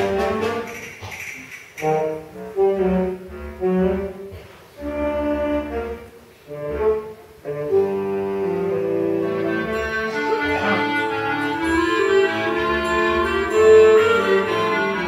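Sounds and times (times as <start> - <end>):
concert band playing held notes: 8.4 - 15.0.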